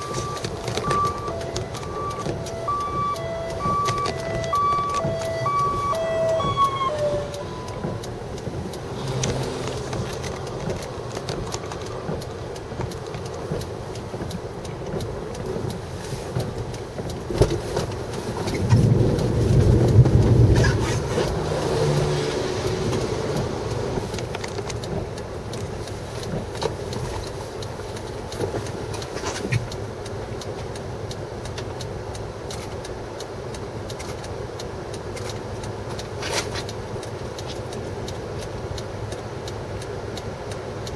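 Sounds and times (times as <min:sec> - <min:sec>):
traffic rumble: 0:00.0 - 0:40.9
wind: 0:00.0 - 0:40.9
vehicle passing close by: 0:08.4 - 0:10.6, 0:18.8 - 0:24.0.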